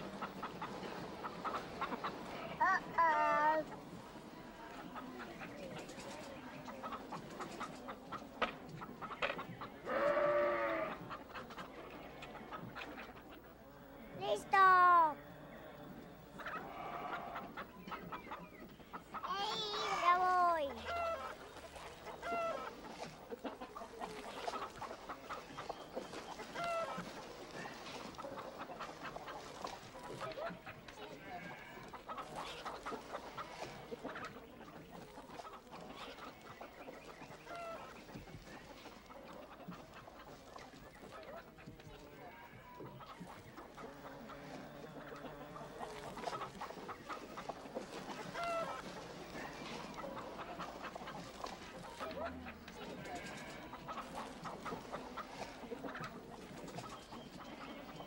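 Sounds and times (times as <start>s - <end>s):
hens clucking: 0.0s - 58.0s
loud hen calls: 9.8s - 11.1s, 16.5s - 17.7s.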